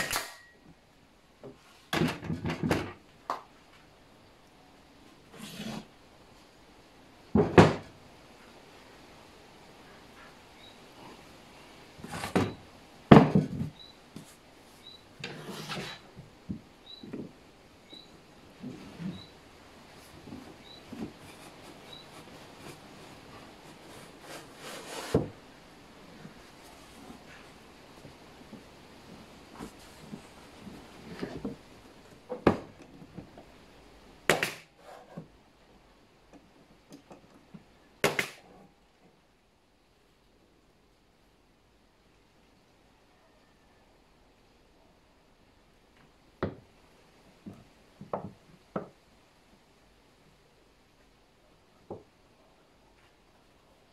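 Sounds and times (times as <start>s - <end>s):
pneumatic nailer firing: 0.0s - 0.5s
wood sliding and rubbing on wood: 5.2s - 6.5s, 12.0s - 12.6s, 13.3s - 17.4s, 18.5s - 33.6s.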